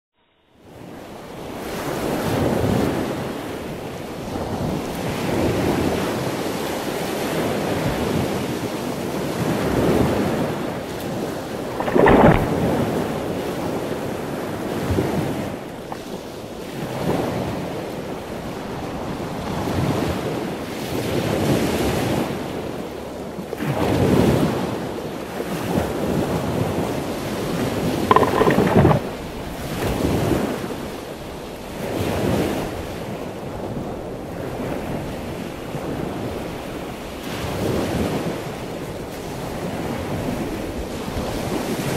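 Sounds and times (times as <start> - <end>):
ocean waves breaking: 9.7 - 19.1, 28.1 - 29.2
wind buffeting microphone: 10.0 - 19.2, 28.1 - 29.4.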